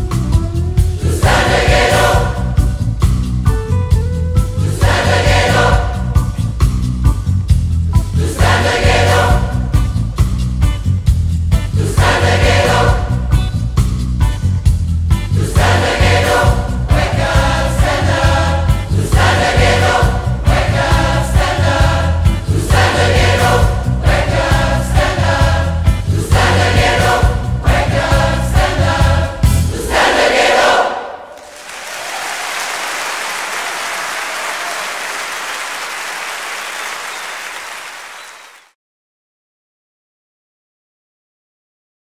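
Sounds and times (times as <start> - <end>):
band bass and drums: 0.0 - 29.8
mass choir singing: 1.0 - 3.0, 4.6 - 6.4, 8.0 - 10.0, 11.7 - 13.4, 15.3 - 38.6
audience applauding: 31.3 - 38.8.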